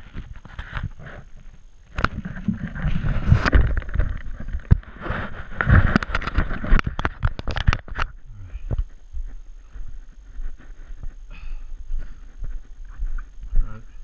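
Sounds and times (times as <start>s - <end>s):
camera handling rubbing: 0.1s - 1.3s, 1.9s - 8.2s
sharp clicks and knocks: 5.6s - 8.9s.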